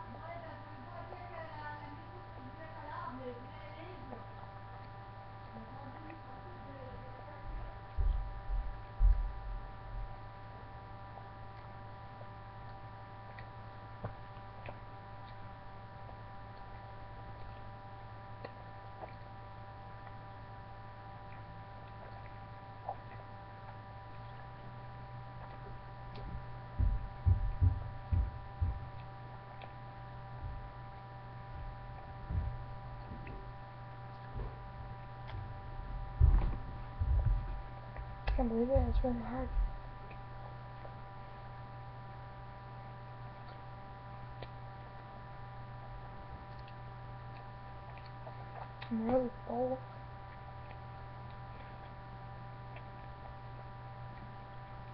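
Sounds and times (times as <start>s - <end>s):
low electrical hum: 0.0s - 54.9s
dull low thumps: 7.4s - 10.2s, 26.1s - 29.0s, 30.4s - 30.8s, 31.5s - 33.6s, 34.3s - 40.0s.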